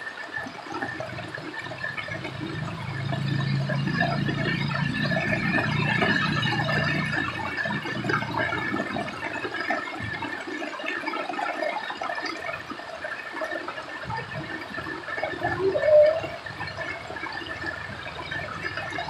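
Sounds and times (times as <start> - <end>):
rainwater running over road: 0.0 - 19.0
heavy rain on street: 0.6 - 12.1.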